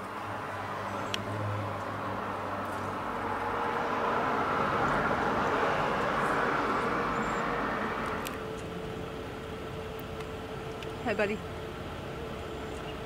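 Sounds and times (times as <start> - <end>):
vehicle passing by: 0.0 - 9.0.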